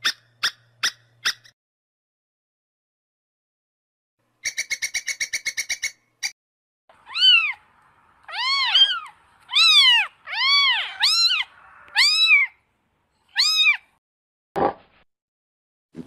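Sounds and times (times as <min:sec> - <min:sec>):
squirrel chirping: 0:00.0 - 0:01.5, 0:04.4 - 0:06.3
kitten mewing: 0:08.3 - 0:12.5.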